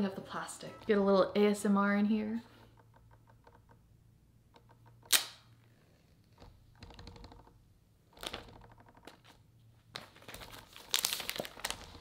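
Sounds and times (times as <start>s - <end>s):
sharp snap: 5.1s - 5.5s
seal tearing: 10.2s - 12.0s.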